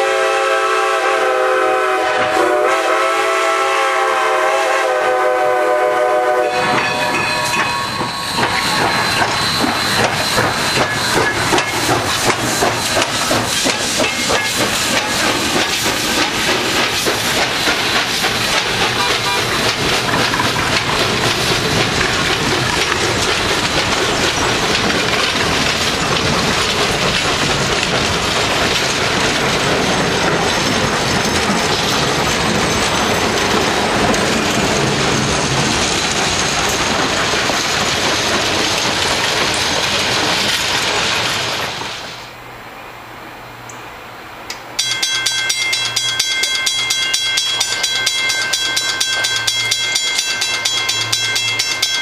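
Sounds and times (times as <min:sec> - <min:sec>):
steam locomotive whistle: 0:00.0 - 0:11.7, 0:18.7 - 0:19.7
locomotive exhaust beat: 0:00.0 - 0:40.4, 0:44.8 - 0:52.0
coaches clicking over rail joints: 0:06.1 - 0:42.4, 0:44.5 - 0:52.0.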